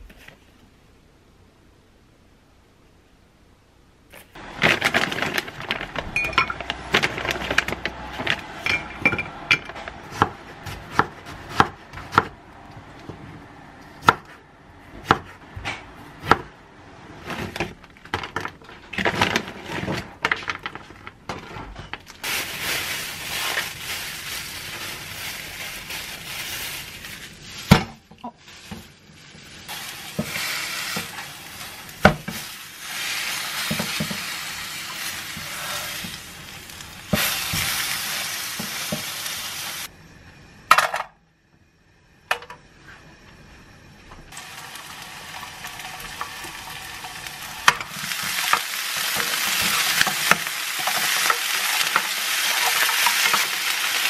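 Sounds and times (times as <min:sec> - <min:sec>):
meat sizzling in a pan: 0:28.4 - 0:39.9, 0:44.3 - 0:54.0.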